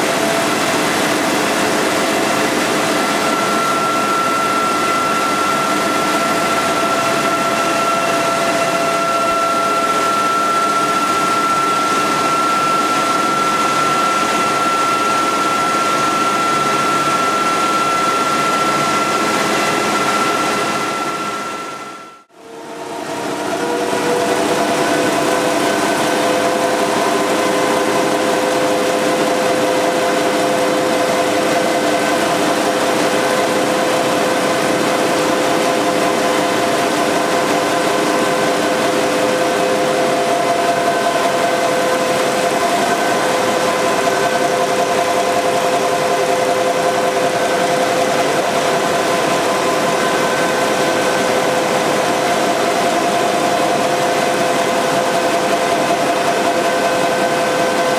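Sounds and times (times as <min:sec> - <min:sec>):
printing press mechanical din: 0:00.0 - 0:21.3, 0:22.7 - 0:57.9
high machine whines: 0:00.0 - 0:57.9.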